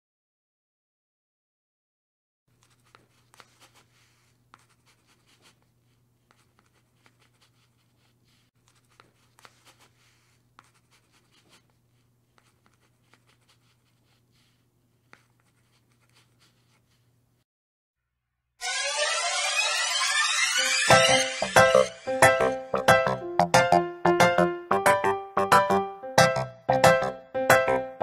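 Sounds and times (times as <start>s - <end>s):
marker pen scratching: 2.5s - 17.1s.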